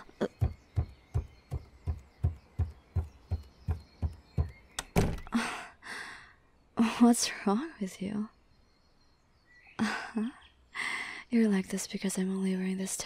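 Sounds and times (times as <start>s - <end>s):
fast heartbeat thumps: 0.2s - 4.7s.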